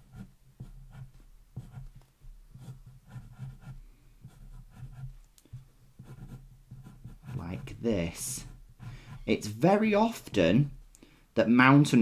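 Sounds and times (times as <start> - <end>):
pencil scratching on paper: 0.0 - 9.5.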